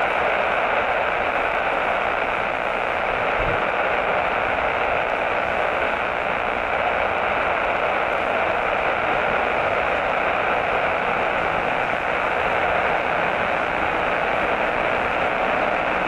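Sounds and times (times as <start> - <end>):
steady static hiss: 0.0 - 16.0.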